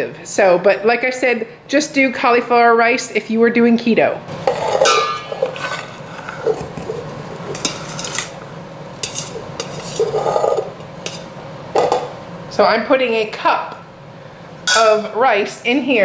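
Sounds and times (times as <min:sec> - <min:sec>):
utensil scraping metal pot: 0:04.3 - 0:08.4, 0:09.0 - 0:12.1.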